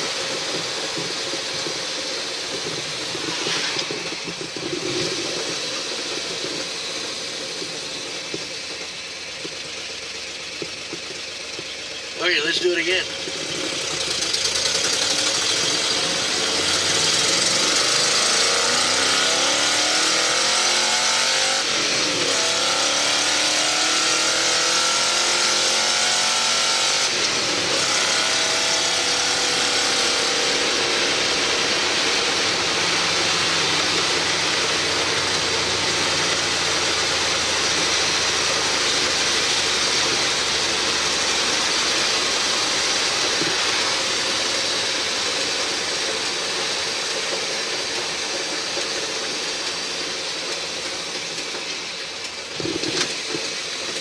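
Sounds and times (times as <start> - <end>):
truck engine accelerating: 0.0 - 54.0.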